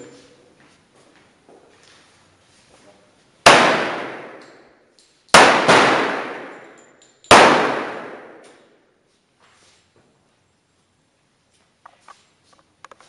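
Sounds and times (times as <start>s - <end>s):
pistol shots echoing: 3.4s - 4.6s, 5.3s - 8.6s.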